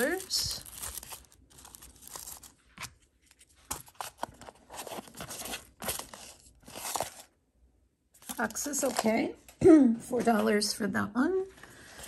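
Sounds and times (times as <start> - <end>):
paper crinkling and tearing: 0.0 - 7.3.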